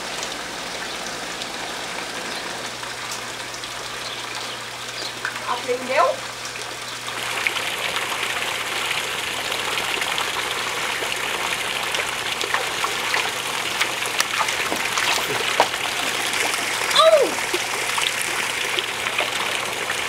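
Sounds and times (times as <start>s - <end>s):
water gushing and splashing: 6.2s - 20.0s.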